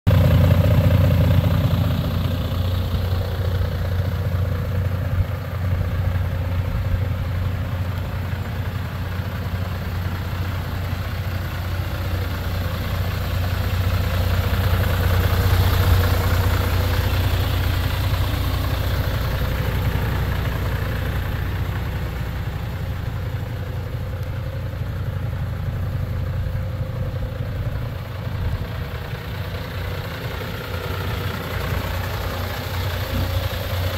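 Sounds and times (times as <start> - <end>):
truck diesel engine idling: 0.1 - 33.9.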